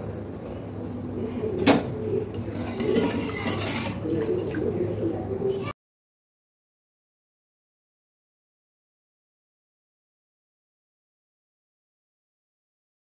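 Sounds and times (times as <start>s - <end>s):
low kitchen hum: 0.0s - 5.8s.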